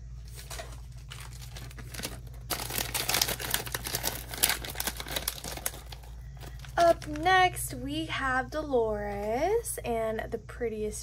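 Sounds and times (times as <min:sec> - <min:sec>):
crinkly plastic bag crackling: 0:00.1 - 0:07.8.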